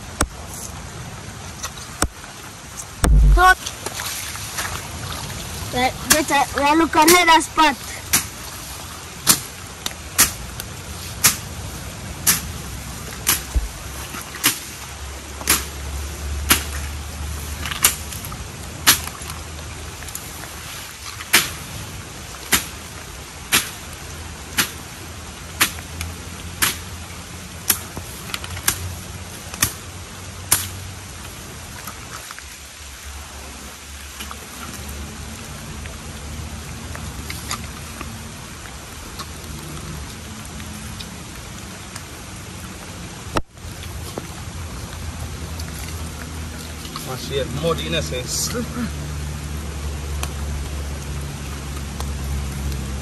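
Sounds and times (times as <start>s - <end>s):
low steady background noise: 0.0s - 53.0s
machete chopping into wet ground: 8.1s - 8.3s, 9.2s - 9.5s, 10.2s - 10.4s, 11.2s - 11.4s, 12.2s - 12.5s, 13.2s - 13.7s, 14.4s - 14.7s, 15.4s - 15.8s, 16.5s - 16.8s, 17.7s - 18.1s, 18.8s - 19.2s, 21.3s - 21.6s, 22.5s - 22.7s, 23.5s - 23.8s, 24.6s - 24.8s, 25.6s - 25.8s, 26.6s - 26.9s, 28.6s - 28.8s, 30.5s - 30.8s.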